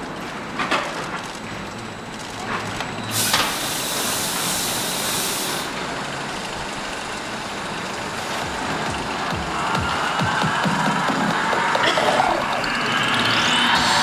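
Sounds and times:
loud hiss of smoke jet: 0:03.1 - 0:05.7.

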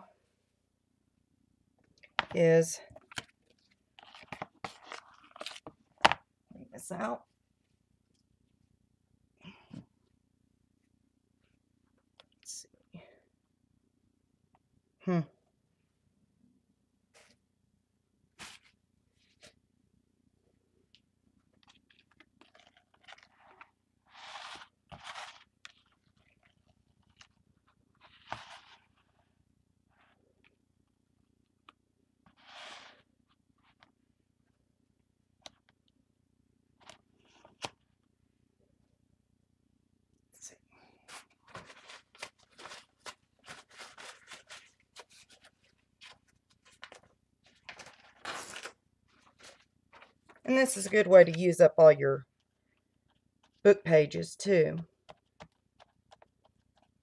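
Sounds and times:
paper rustling and scraping: 0:04.0 - 0:05.7, 0:18.4 - 0:19.6, 0:21.6 - 0:27.4, 0:28.0 - 0:29.2, 0:32.3 - 0:33.8, 0:41.0 - 0:51.4.

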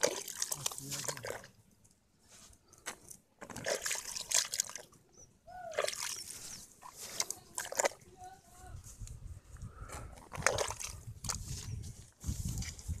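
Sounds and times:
wet mud squelching: 0:00.0 - 0:01.9, 0:02.6 - 0:08.2, 0:10.0 - 0:13.0
water sloshing: 0:00.0 - 0:02.0, 0:02.6 - 0:08.6, 0:10.2 - 0:11.8.

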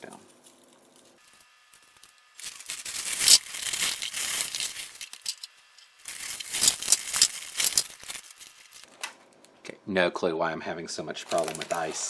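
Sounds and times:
ice cubes clattering and sliding: 0:02.0 - 0:05.5, 0:06.1 - 0:08.9, 0:11.3 - 0:12.0.

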